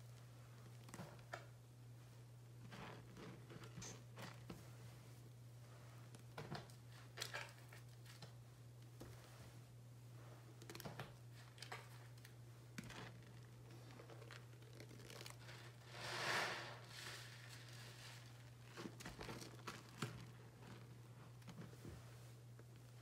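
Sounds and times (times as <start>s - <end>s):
sponge squishing in foamy water: 13.3s - 20.8s.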